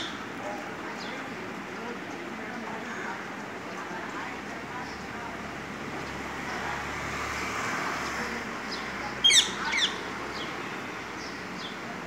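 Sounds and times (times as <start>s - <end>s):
parakeet shrill calls: 9.2s - 10.0s.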